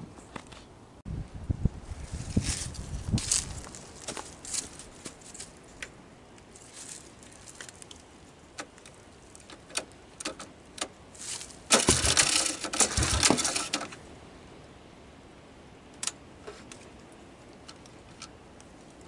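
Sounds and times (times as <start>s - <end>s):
loud scraping and rattling: 11.2s - 14.0s.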